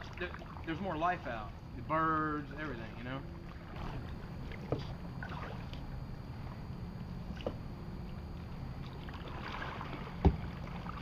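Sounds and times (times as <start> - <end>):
paddle swishing and dripping: 0.0 - 1.6, 2.5 - 11.0.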